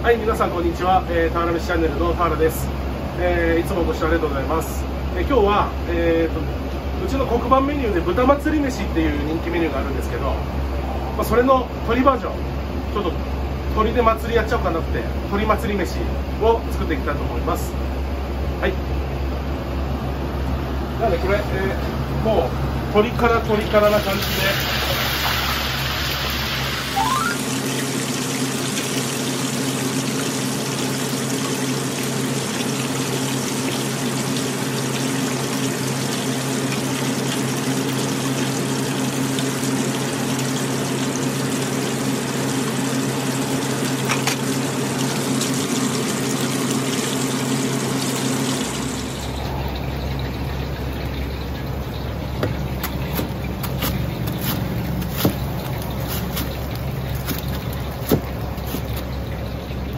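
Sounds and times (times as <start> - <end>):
chicken deep-frying in oil: 0.0 - 59.9
low hum: 48.9 - 59.9
cleaver chopping on block: 52.4 - 56.6, 57.2 - 59.0.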